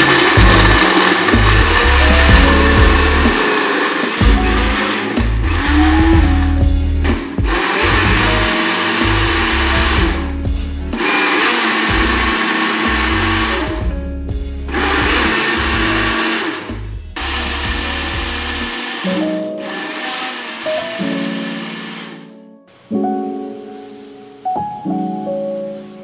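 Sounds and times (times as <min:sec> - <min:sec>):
electric blender running: 0:00.0 - 0:06.6, 0:07.4 - 0:10.4, 0:11.0 - 0:13.9, 0:14.7 - 0:22.4
background music: 0:00.0 - 0:26.0.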